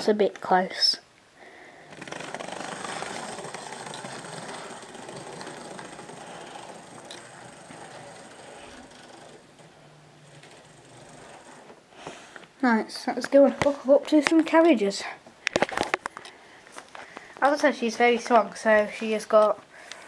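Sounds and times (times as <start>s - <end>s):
wheels on rails: 1.6s - 12.6s
model train motor whirring: 1.8s - 12.4s.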